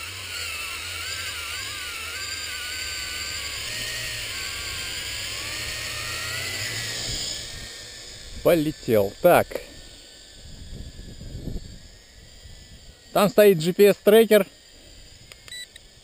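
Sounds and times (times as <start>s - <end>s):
quadcopter propellers whirring: 0.0s - 16.0s.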